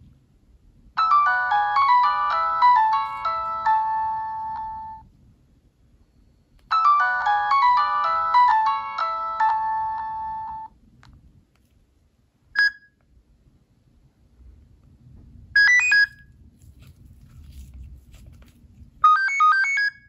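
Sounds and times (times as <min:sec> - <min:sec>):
synthesized ringtone melodies: 0:01.0 - 0:05.0, 0:06.7 - 0:10.8, 0:19.0 - 0:20.0.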